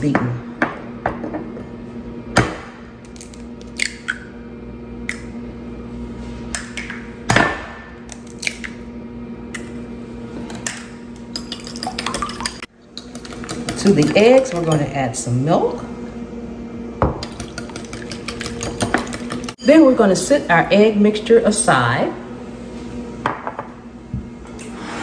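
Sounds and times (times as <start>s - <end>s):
eggs cracking on a ceramic bowl: 11.3s - 13.8s
whisk beating eggs: 11.3s - 14.9s, 17.2s - 19.6s.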